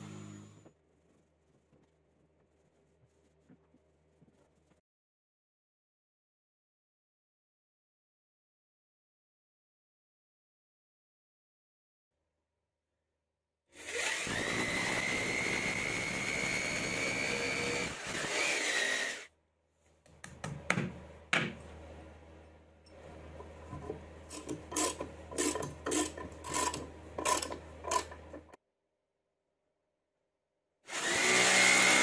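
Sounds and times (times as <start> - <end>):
electric drill boring into wall: 13.8 - 19.3, 24.3 - 28.6, 30.9 - 32.0
hammer tapping: 20.0 - 21.7.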